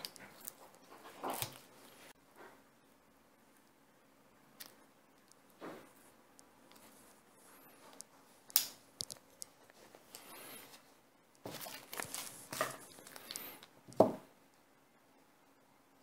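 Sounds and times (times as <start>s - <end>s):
handling rustles and clicks: 7.7s - 13.8s.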